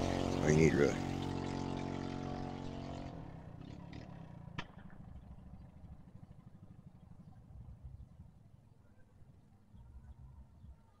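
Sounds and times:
small engine running: 0.0s - 7.4s
faint low rumble: 0.0s - 11.0s.

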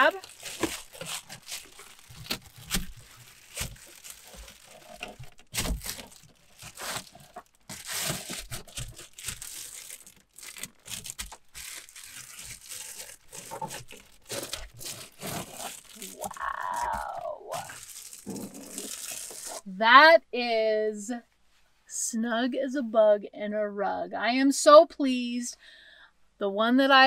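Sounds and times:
foil insulation crinkling: 0.0s - 19.7s.

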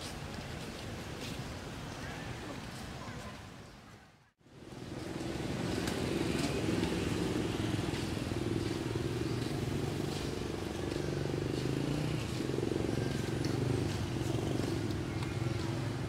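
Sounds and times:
engine running with low hum: 4.5s - 16.0s.

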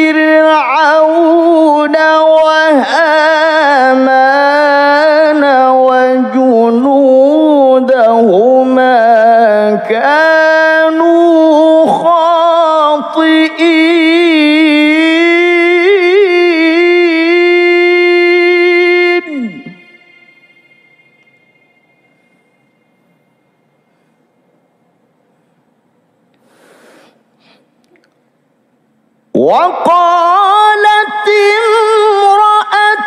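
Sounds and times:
man reciting in melodic chant: 0.0s - 20.3s, 29.3s - 33.0s.

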